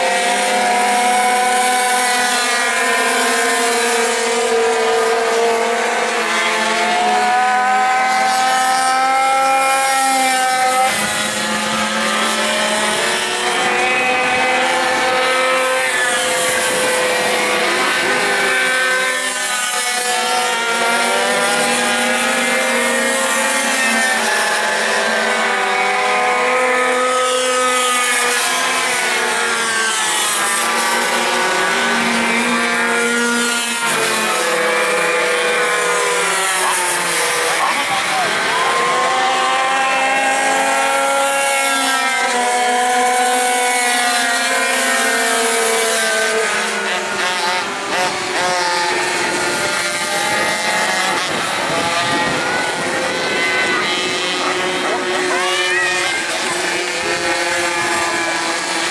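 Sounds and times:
pocket bike engines whining: 46.8 - 58.9.

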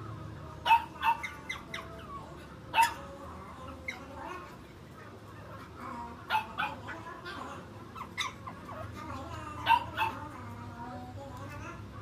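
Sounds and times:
dog barking: 0.6 - 1.9, 2.7 - 3.1, 6.3 - 7.0, 9.6 - 10.3
faint dog yelp: 0.6 - 4.6, 5.4 - 10.5.

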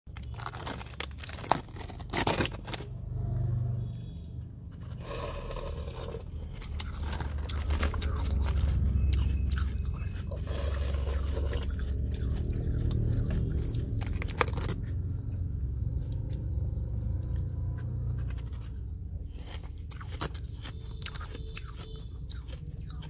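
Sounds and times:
shaved ice crunching in mouth: 0.1 - 2.9, 4.8 - 14.8, 19.3 - 23.0
steady low hum: 3.4 - 20.6.

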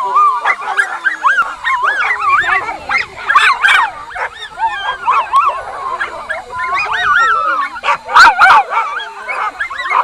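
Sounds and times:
dogs yelping and whining: 0.0 - 10.0.

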